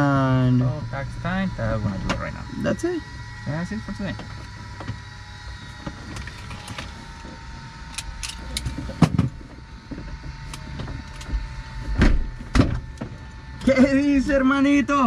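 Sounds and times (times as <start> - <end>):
steady low hum: 0.0 - 15.0
loud thump: 11.9 - 12.9.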